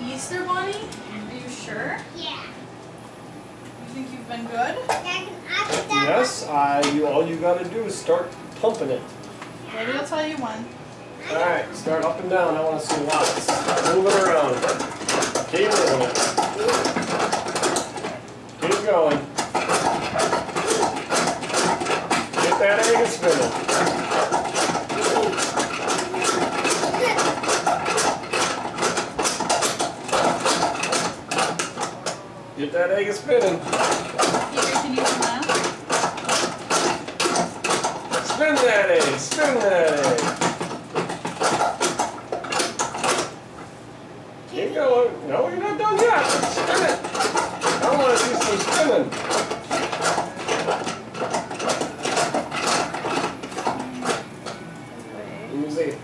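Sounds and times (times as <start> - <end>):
plastic pump mechanism: 12.0 - 32.2, 33.3 - 43.4, 45.8 - 54.6
plastic toy clicking and rattling: 46.0 - 54.2.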